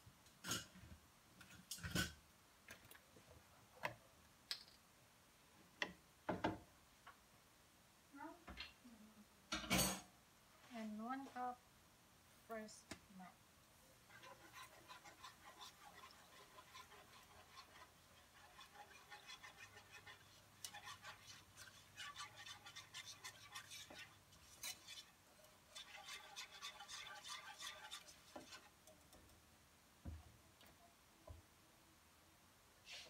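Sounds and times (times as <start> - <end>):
whisk scraping in a pan: 13.9 - 29.2.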